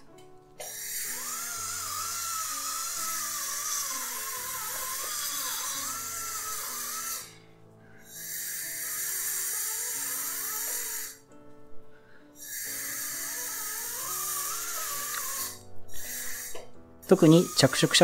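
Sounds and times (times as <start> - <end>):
background music: 0.0 - 18.0
dental handpiece whine: 0.6 - 11.3, 12.3 - 18.0.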